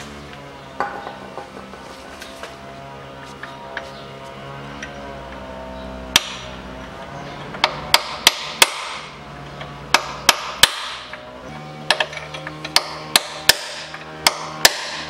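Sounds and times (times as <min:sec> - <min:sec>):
hammer striking steel bar: 0:06.2 - 0:06.5, 0:07.6 - 0:09.1, 0:09.9 - 0:11.2, 0:11.9 - 0:15.0.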